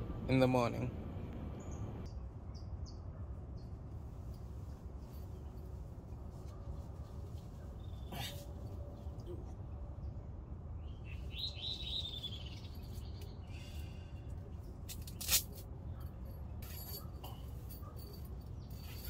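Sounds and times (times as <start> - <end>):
low steady rumble: 0.0 - 2.6.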